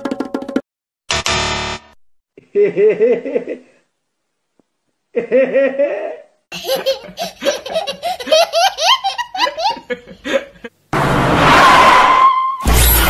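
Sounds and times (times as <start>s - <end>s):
bursts of laughter: 5.2s - 10.7s
child laughing: 6.5s - 10.7s.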